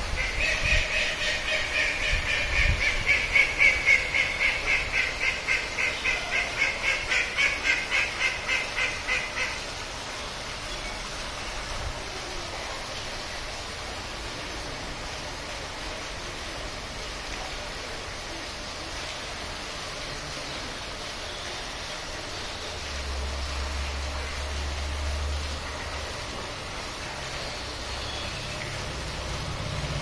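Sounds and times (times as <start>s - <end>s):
water birds quacking: 0.0s - 9.8s.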